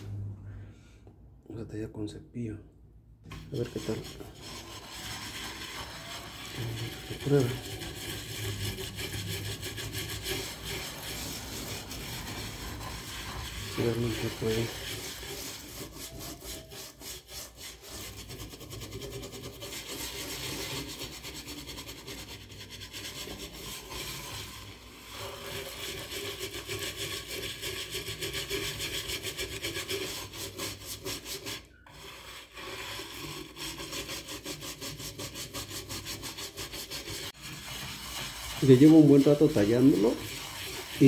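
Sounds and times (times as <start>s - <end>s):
scrub brush scrubbing a pan: 3.3s - 41.0s.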